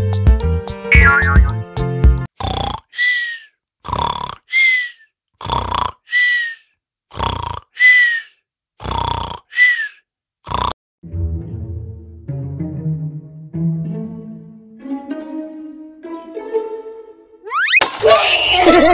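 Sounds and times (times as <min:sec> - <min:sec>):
dog snoring with whistles: 0:05.4 - 0:06.4, 0:07.1 - 0:08.0, 0:08.8 - 0:09.8, 0:10.5 - 0:10.7.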